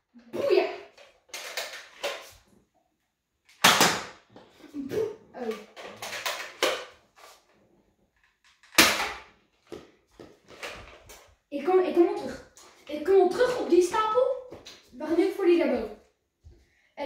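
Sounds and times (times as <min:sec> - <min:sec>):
toy blaster shots: 0:03.6 - 0:04.1.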